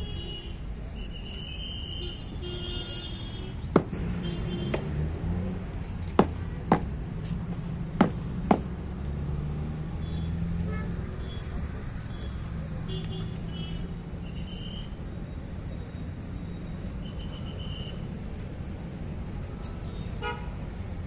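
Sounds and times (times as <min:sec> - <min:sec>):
traffic hum: 0:00.0 - 0:21.0
boots marching on paving: 0:03.7 - 0:04.0, 0:05.8 - 0:08.8.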